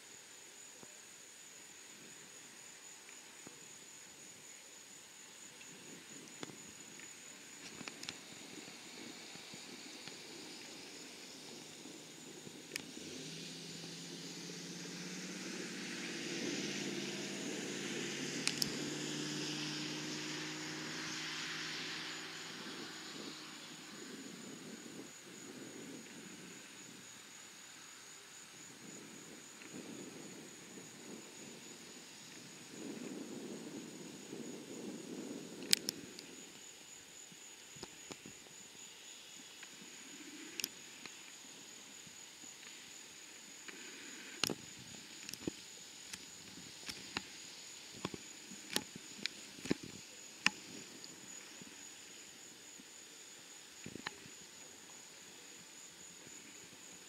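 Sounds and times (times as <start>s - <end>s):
jet engines passing overhead: 5.9s - 27.8s.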